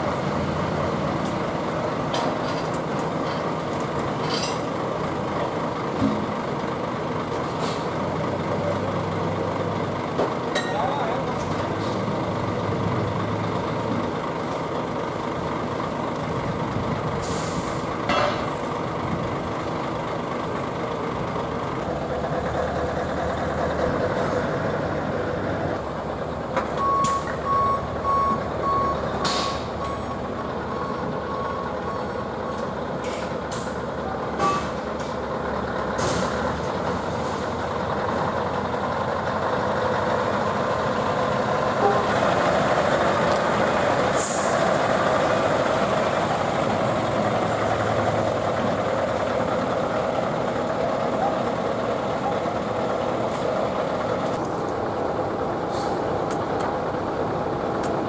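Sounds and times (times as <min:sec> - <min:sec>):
truck diesel engines running: 0:00.0 - 0:58.0
air brake hisses: 0:17.2 - 0:17.8, 0:44.2 - 0:44.6, 0:55.7 - 0:56.0
reversing alarm beeping: 0:26.8 - 0:32.6.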